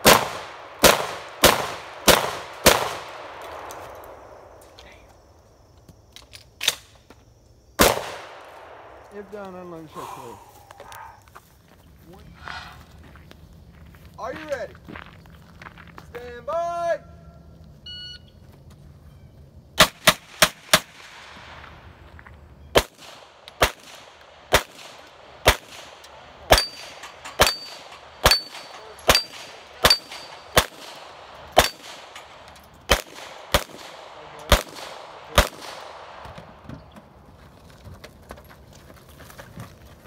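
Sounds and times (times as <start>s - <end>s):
steel plates ringing: 26.5s - 30.6s
handgun shots: 26.5s - 32.3s, 32.9s - 36.4s.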